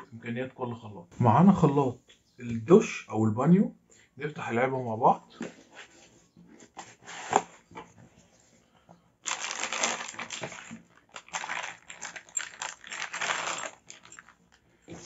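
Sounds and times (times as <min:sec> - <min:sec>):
plastic bag crinkling: 0:09.2 - 0:15.0.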